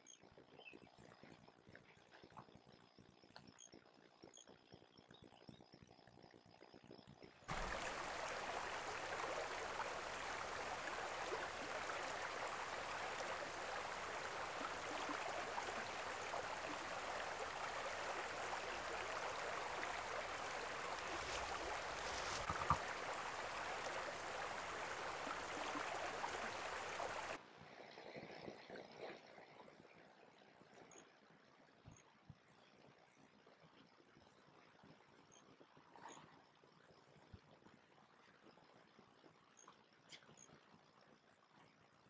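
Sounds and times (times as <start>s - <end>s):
creek babbling over gravel: 7.5s - 27.4s.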